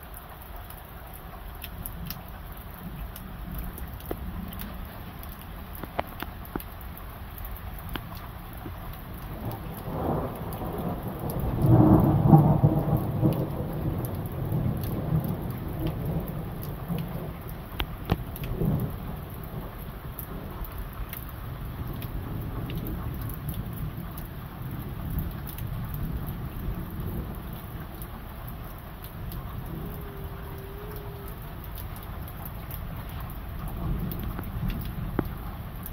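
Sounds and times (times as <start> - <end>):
heavy rain: 0.0 - 35.9
raindrops ticking close by: 0.0 - 35.9
thunder rumbling: 9.1 - 20.6, 21.7 - 35.9.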